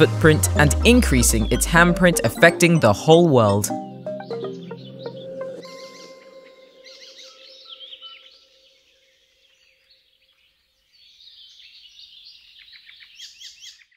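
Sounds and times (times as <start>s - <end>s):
low held music note: 0.0s - 3.7s
birds chirping and twittering: 3.0s - 13.9s.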